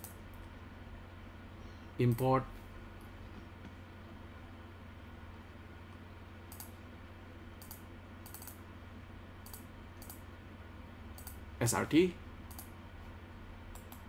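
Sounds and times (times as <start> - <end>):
computer mouse clicks: 0.0 - 0.5, 6.5 - 6.8, 7.6 - 8.6, 9.4 - 10.2, 11.2 - 11.4, 12.5 - 12.7, 13.7 - 14.0
faint low hum: 0.0 - 14.0.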